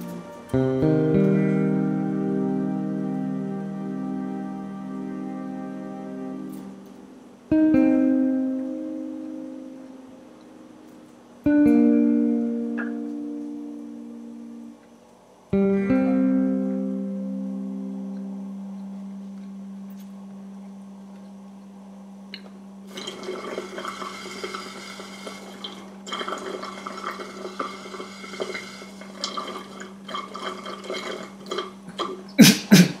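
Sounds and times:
held low synth note: 0.0 - 10.9.

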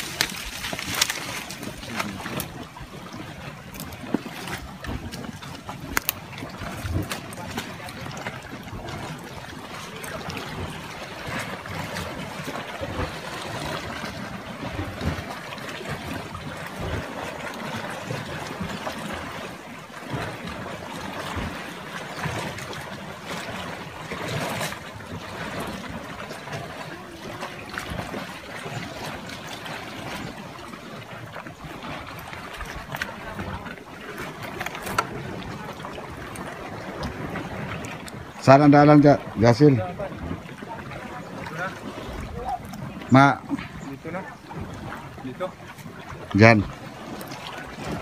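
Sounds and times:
sea water washing on rocks: 0.0 - 48.0.

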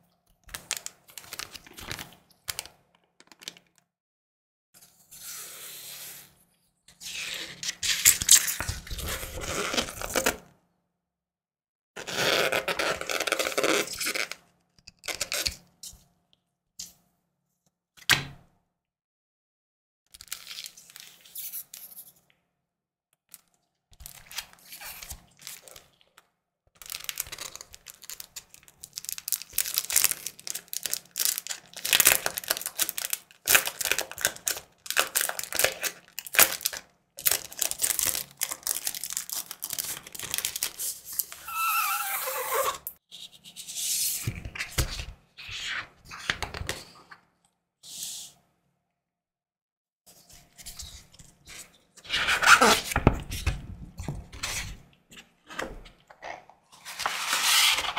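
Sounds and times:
plastic sleeves crinkling: 0.5 - 3.8, 26.8 - 41.7
squeaky rub of plastic film: 41.2 - 43.3, 50.6 - 53.0.

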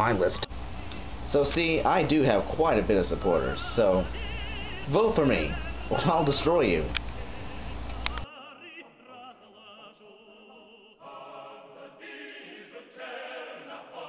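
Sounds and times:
operatic singing with vibrato: 2.0 - 14.0
choir singing: 2.8 - 14.0
click: 7.9 - 8.3.

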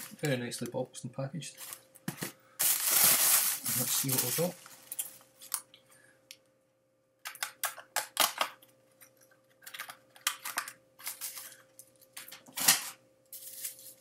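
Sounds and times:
packaging crinkling and rustling: 1.6 - 5.6, 9.6 - 14.0.

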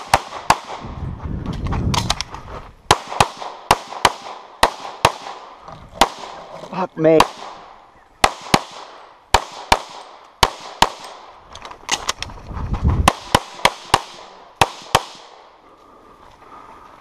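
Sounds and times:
pistol shots: 0.0 - 0.8, 2.9 - 6.4, 7.1 - 11.4, 13.0 - 15.5.

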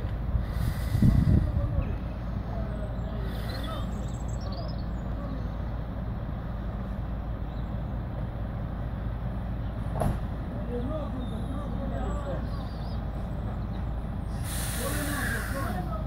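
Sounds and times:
diesel truck engine rumbling: 0.0 - 16.0
brief knock: 10.0 - 10.3.

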